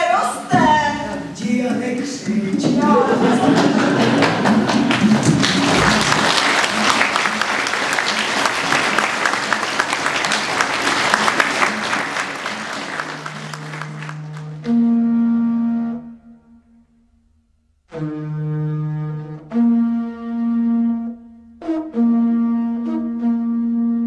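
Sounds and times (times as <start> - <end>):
audience applauding: 3.1 - 14.6
low held wind instrument note: 13.4 - 17.2.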